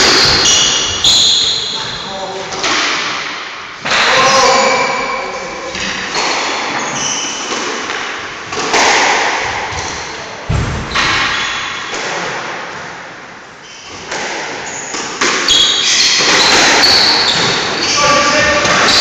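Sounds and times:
shoes squeaking on wooden floor: 0:00.0 - 0:02.2, 0:04.5 - 0:07.7, 0:13.6 - 0:19.0
squash ball and racket hits: 0:00.0 - 0:04.8, 0:05.6 - 0:13.2, 0:13.8 - 0:19.0.

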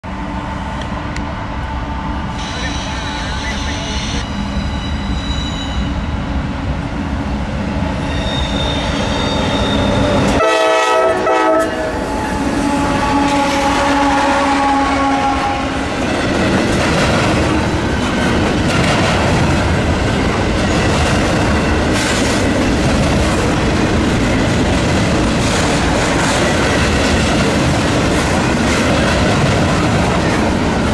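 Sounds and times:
diesel locomotive engine: 0:00.0 - 0:30.9
train horn blast: 0:10.4 - 0:15.9
train wheels clacking on rails: 0:15.8 - 0:30.9.

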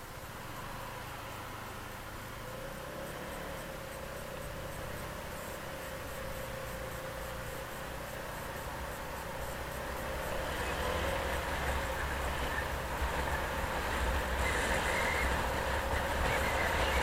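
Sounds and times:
vehicle road noise rumble: 0:00.0 - 0:17.0.

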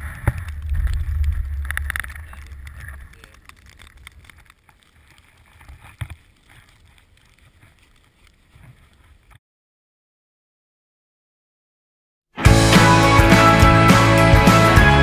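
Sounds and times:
snowboard bindings clicking: 0:00.0 - 0:09.4
wind rumbling on microphone: 0:00.0 - 0:09.4.

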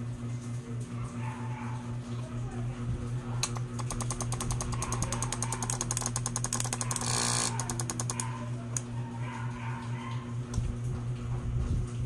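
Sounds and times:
low mains hum: 0:00.0 - 0:12.0
relays chattering: 0:03.5 - 0:08.4.

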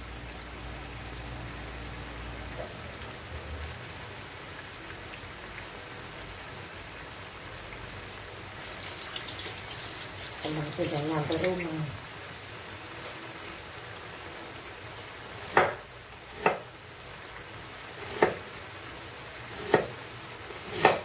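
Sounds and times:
broth bubbling and crackling: 0:02.2 - 0:12.7.

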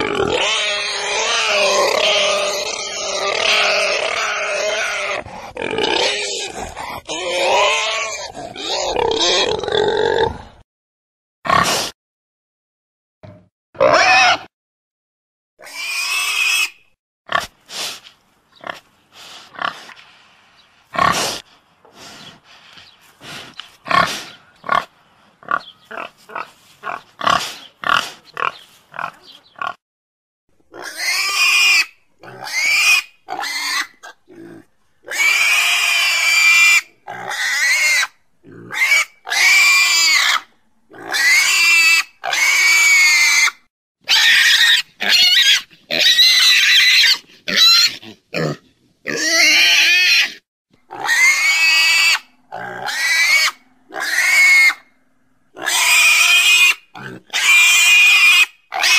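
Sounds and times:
pig squealing: 0:00.0 - 0:10.3, 0:13.8 - 0:14.5, 0:15.6 - 0:17.5, 0:23.9 - 0:29.8, 0:30.7 - 0:54.9, 0:55.5 - 0:58.9
pig grunting: 0:00.0 - 0:10.6, 0:23.2 - 0:29.8, 0:32.2 - 0:36.2, 0:38.4 - 0:39.6, 0:45.0 - 0:58.0.

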